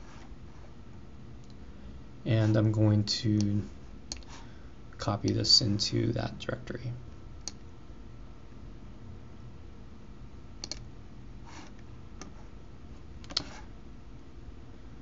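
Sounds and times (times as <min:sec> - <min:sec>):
faint steady hum: 0:00.0 - 0:15.0
computer mouse clicking: 0:04.1 - 0:04.3, 0:07.4 - 0:07.6, 0:10.6 - 0:10.9, 0:11.6 - 0:12.4, 0:13.2 - 0:13.7.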